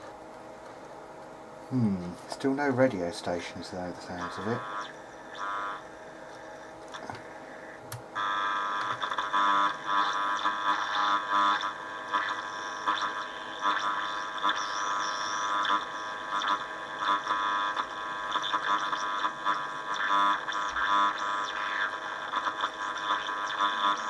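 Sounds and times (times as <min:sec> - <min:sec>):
radio static hiss: 0:01.5 - 0:24.0
radio whistles and tones: 0:04.1 - 0:24.0
radio dial click: 0:06.3 - 0:09.3.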